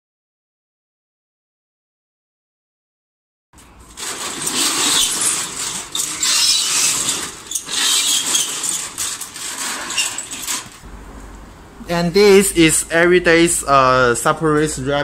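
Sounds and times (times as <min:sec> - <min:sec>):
metal roller shutter rattling: 0:03.6 - 0:11.0.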